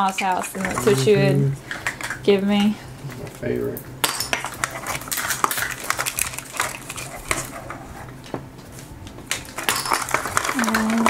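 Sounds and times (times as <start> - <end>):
plastic toy pieces clicking: 9.3 - 11.0.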